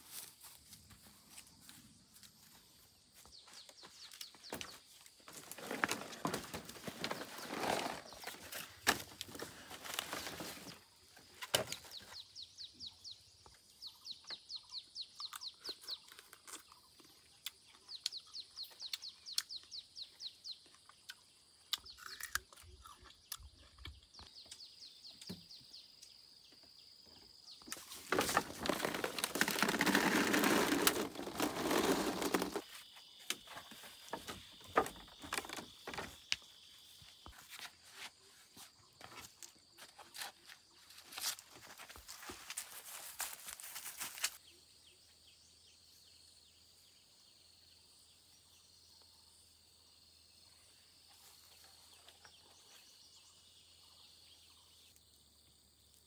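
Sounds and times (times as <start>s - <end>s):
loud rustling noise: 28.0s - 32.7s.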